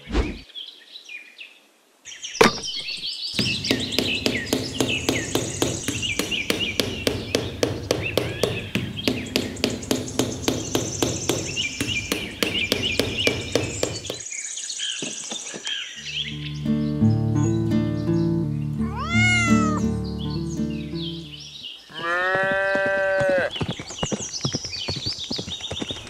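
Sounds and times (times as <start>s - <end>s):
birds chirping: 0.0s - 1.3s, 2.1s - 26.0s
rapid even tapping: 3.4s - 14.2s.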